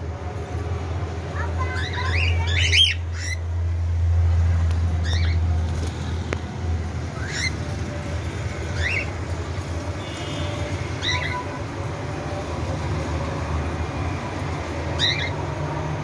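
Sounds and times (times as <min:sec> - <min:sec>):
cockatiel chirp calls: 0:05.0 - 0:05.4, 0:08.8 - 0:09.1, 0:15.0 - 0:15.3.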